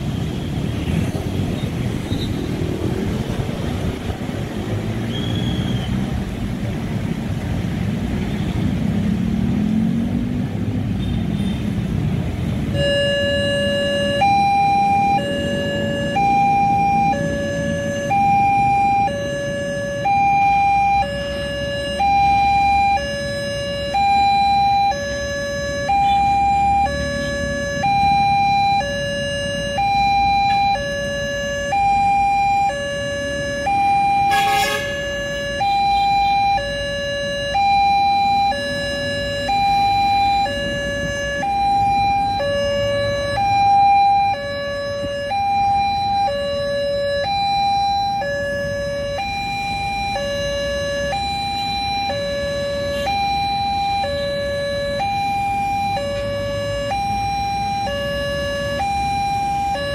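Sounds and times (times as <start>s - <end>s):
motorbikes passing: 0.0s - 59.9s
road traffic: 0.0s - 59.9s
level crossing two-tone alarm: 12.7s - 59.9s.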